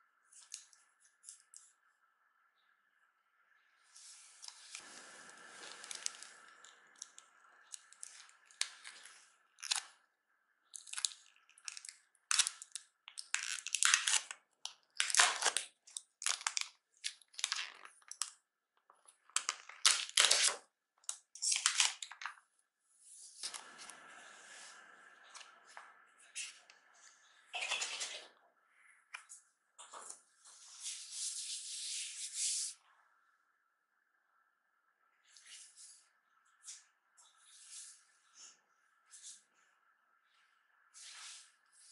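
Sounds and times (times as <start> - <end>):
plastic film peeling and crinkling: 10.8 - 18.4, 19.3 - 20.6.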